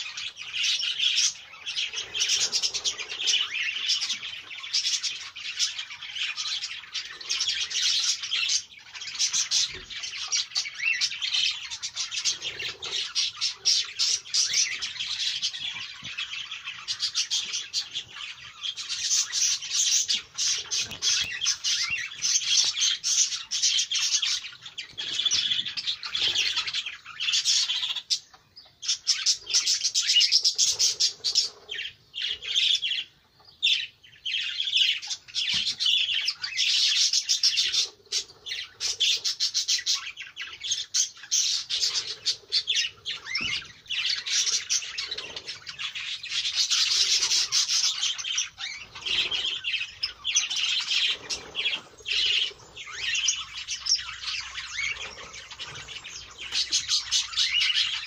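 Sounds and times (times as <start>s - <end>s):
birds chattering and squawking: 0.0s - 58.0s.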